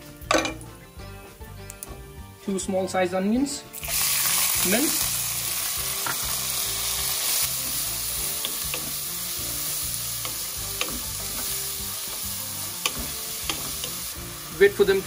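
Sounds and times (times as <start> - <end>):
onions sizzling in hot oil: 3.7 - 15.0
spatula knocking and scraping pan: 10.2 - 14.0.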